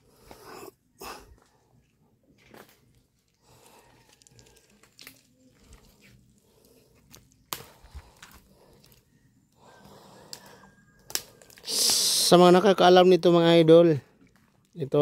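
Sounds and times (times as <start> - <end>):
soft ticks and rustles: 2.4 - 9.0.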